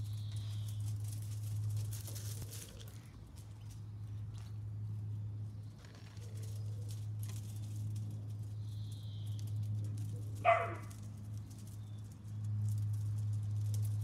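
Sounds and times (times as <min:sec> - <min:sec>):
puppy yipping: 0:10.4 - 0:10.9.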